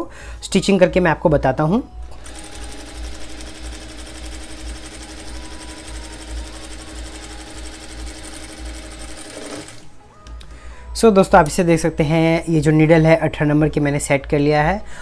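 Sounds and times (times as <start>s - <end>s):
sewing machine stitching: 2.1s - 9.9s.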